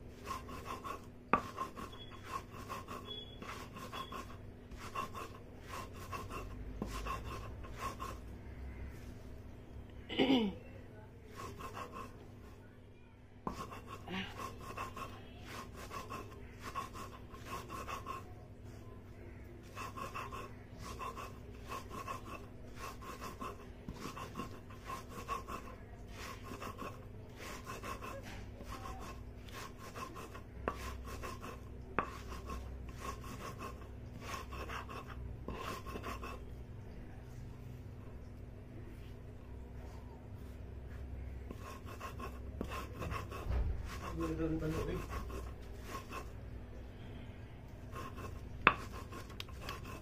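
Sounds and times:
stone grinding on stone: 0:00.2 - 0:08.2, 0:13.5 - 0:18.2, 0:19.6 - 0:36.4, 0:48.0 - 0:50.0.

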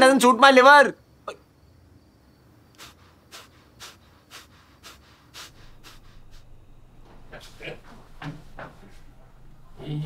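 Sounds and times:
man breathing through nose: 0:02.7 - 0:07.6.

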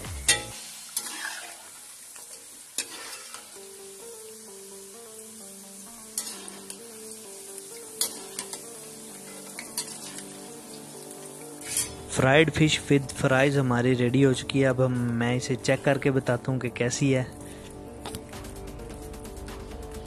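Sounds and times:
fries sizzling in hot oil: 0:00.0 - 0:16.3
soft background music: 0:00.0 - 0:20.0.

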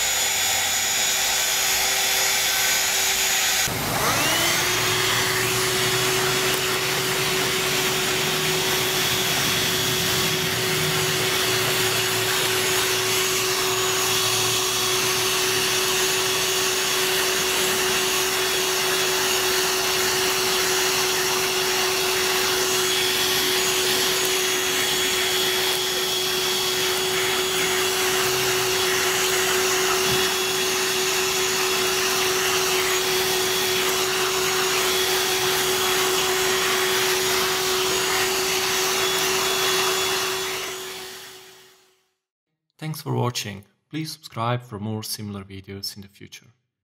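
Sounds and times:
handheld vacuum running on carpet: 0:00.0 - 0:41.9.

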